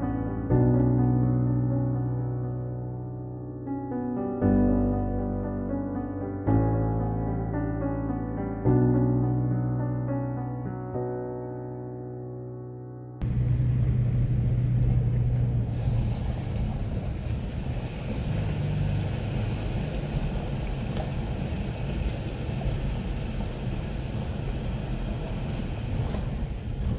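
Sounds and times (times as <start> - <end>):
tyres rolling over gravel: 13.2 - 26.9
vehicle engine hum: 13.2 - 26.9.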